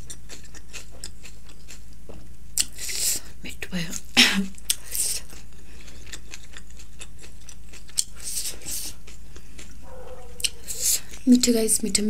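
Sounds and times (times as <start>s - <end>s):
lip smacks: 7.4s - 11.2s.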